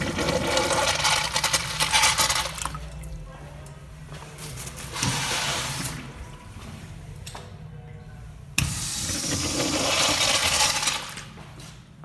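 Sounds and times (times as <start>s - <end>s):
water rushing through urinal: 0.0s - 2.9s, 9.0s - 10.9s.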